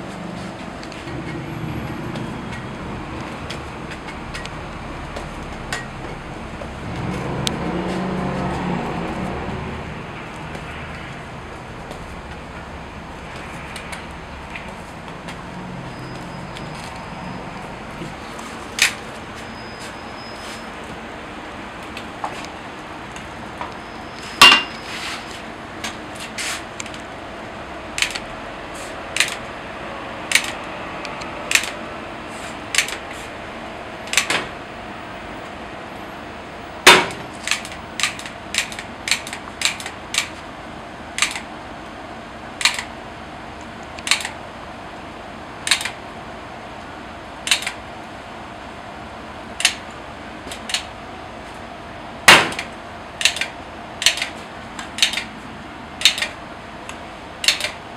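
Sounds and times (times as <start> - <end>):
cast iron molds clanking: 24.4 - 24.8.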